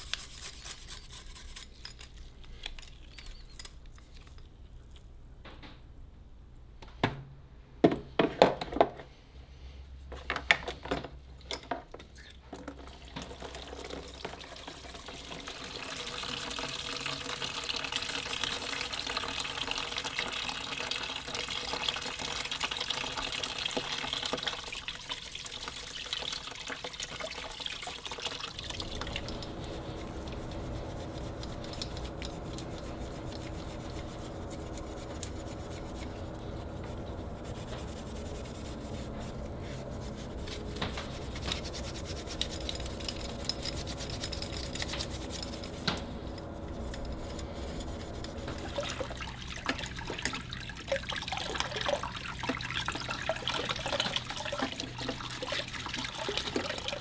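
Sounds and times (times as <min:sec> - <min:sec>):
scratchy rubbing on metal: 0:00.0 - 0:02.0, 0:29.0 - 0:46.0, 0:46.6 - 0:49.2
tap water flowing: 0:12.5 - 0:57.0.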